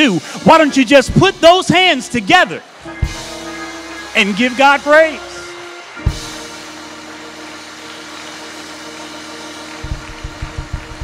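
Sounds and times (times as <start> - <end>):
congregation applauding and praising: 0.0 - 11.0
church organ chord: 2.8 - 11.0
bass drum hits: 2.9 - 3.4, 6.0 - 6.6, 9.8 - 11.0.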